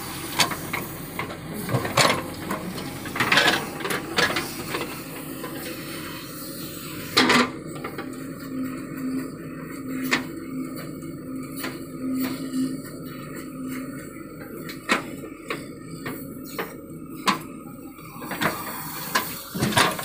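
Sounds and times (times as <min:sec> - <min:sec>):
diesel engine and hydraulics humming: 0:00.0 - 0:20.0.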